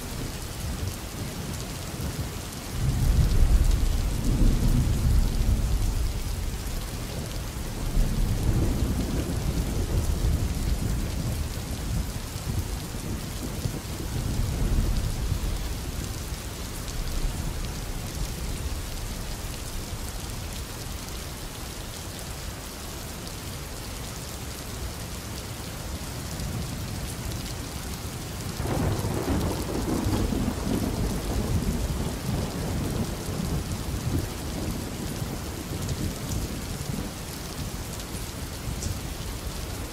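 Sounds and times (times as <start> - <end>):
steady rain: 0.0 - 39.9
rolling thunder: 2.8 - 6.8, 28.5 - 34.2.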